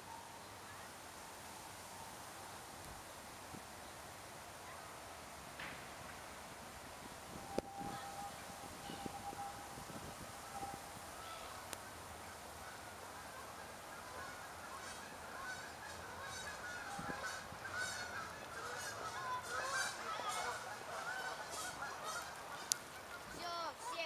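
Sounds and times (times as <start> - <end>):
flock of waterbirds calling: 7.3 - 24.0.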